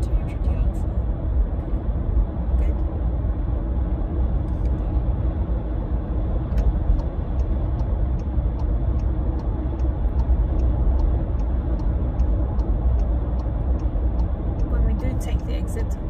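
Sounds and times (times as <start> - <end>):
car road and engine rumble: 0.0 - 16.0
turn indicator ticking: 4.2 - 16.0.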